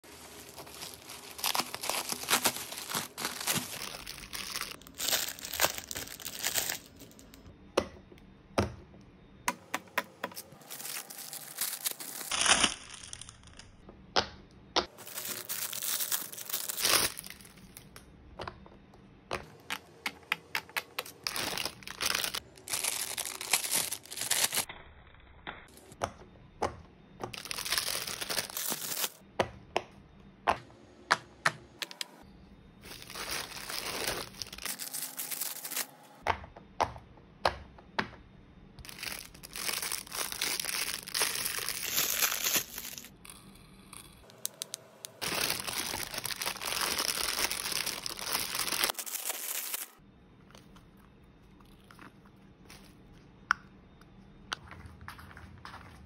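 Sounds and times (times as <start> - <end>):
plastic bag crinkling: 0.0 - 7.4, 10.4 - 13.6, 14.8 - 17.8, 21.1 - 24.7, 27.4 - 29.2, 32.8 - 35.9, 38.8 - 43.2, 44.2 - 50.0.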